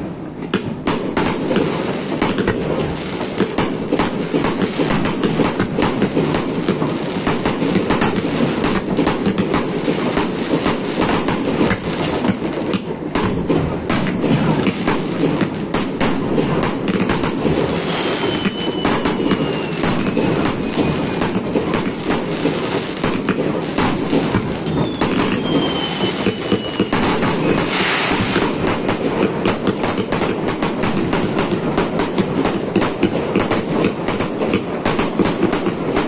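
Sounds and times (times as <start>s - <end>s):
fireworks banging and crackling: 0.0s - 36.0s
descending whistle: 17.9s - 21.2s, 24.6s - 27.7s.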